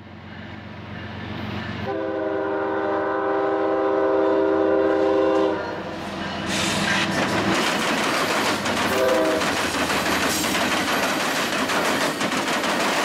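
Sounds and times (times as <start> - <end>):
locomotive air horn: 1.8 - 5.9, 8.9 - 9.5
locomotive engine passing: 4.1 - 13.0
train wheels clattering: 6.0 - 13.0.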